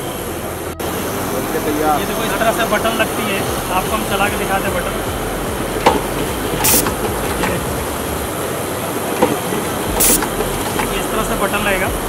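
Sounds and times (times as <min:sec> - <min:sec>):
exhibition hall din: 0:00.0 - 0:12.0
machine short sharp hisses: 0:10.0 - 0:10.3.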